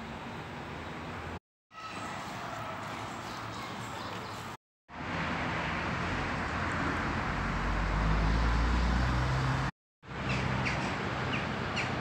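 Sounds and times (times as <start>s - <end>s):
street noise: 0.0s - 12.0s
car engine rumbling past: 5.0s - 9.7s.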